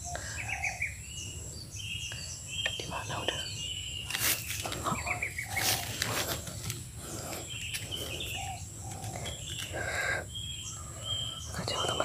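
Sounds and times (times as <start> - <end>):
birds chirping: 0.0 - 12.0
rustling and light clicks: 4.0 - 8.0, 8.8 - 9.7.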